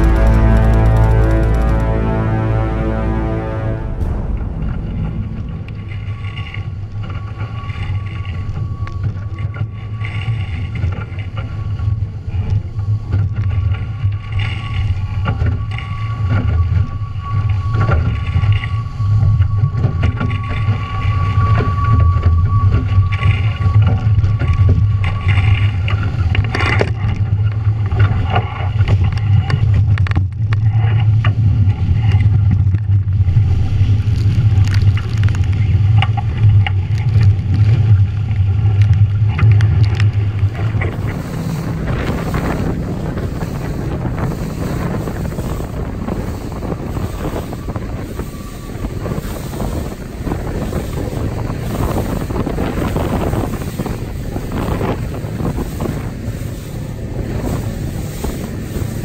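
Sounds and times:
steady high whine: 0.0s - 10.2s, 35.6s - 59.0s
water rushing past boat: 0.0s - 59.0s
wind buffeting microphone: 0.0s - 59.0s.

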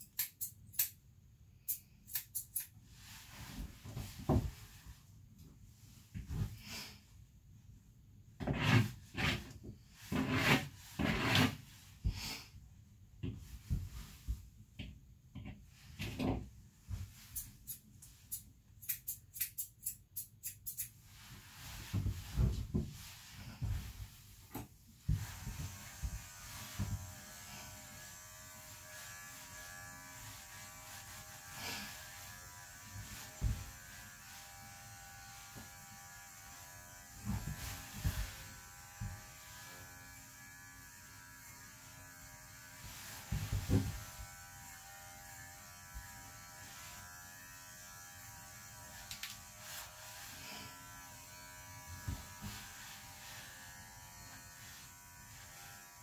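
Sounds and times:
electric clippers buzzing: 25.2s - 56.0s.

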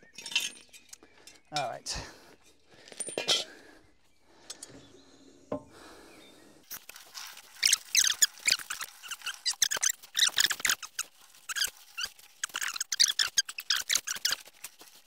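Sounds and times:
metallic clinks and knocks: 0.0s - 1.8s, 2.8s - 3.6s
squeaky clicks: 6.7s - 15.0s.

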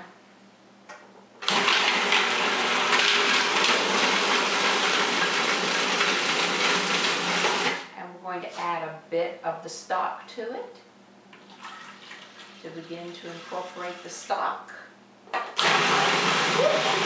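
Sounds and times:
food processor whirring: 1.4s - 7.9s, 15.6s - 17.0s.

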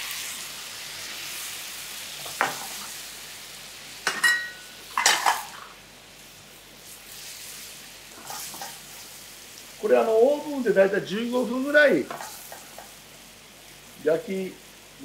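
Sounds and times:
chicken sizzling in a pan: 0.0s - 15.0s
metal ladle clinking on pan: 4.1s - 5.3s.

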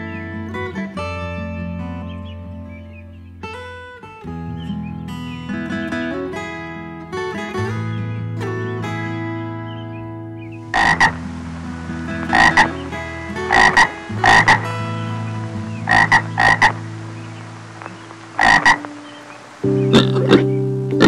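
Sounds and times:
soft background music: 0.0s - 21.0s
frog croaking: 10.6s - 21.0s.

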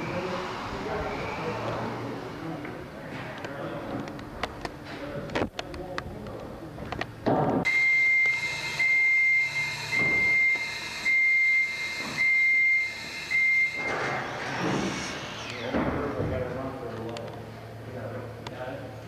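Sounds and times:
scissor lift alarm beeping: 7.7s - 14.2s.

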